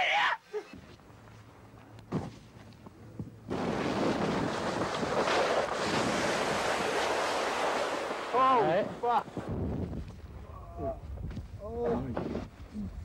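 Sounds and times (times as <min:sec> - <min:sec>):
wind rushing over microphone: 0:03.5 - 0:13.0.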